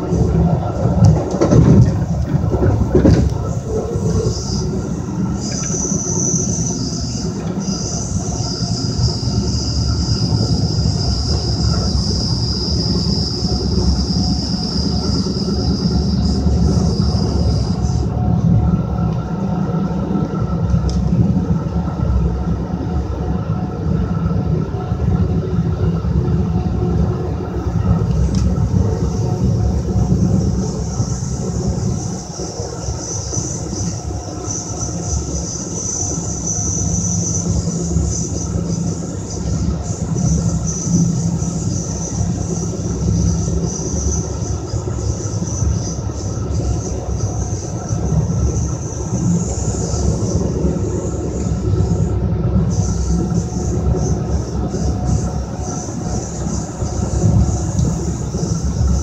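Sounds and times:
train wheels rumbling on rails: 0.0s - 59.0s
thin high whine: 3.3s - 21.0s.

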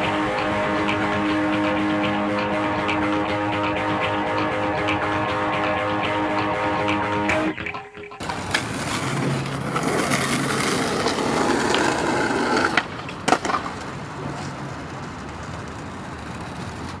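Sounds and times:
skateboard clacks: 0.3s - 17.0s
skateboard wheels rolling on asphalt: 8.2s - 17.0s.

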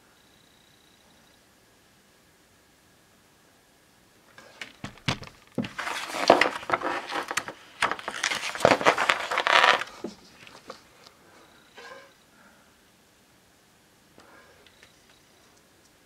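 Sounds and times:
magazine pages rustling: 4.4s - 10.9s.

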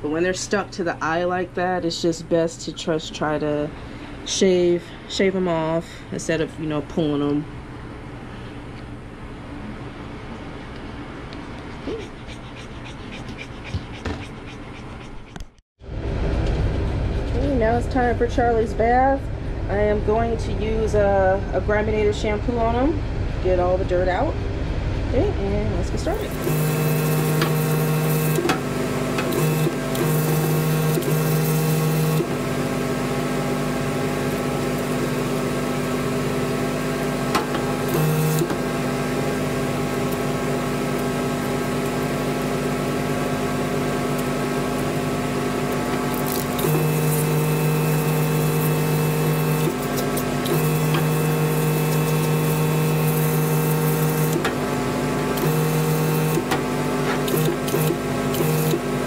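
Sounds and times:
electric equipment hum: 0.0s - 59.0s
water pump drone: 26.0s - 59.0s.

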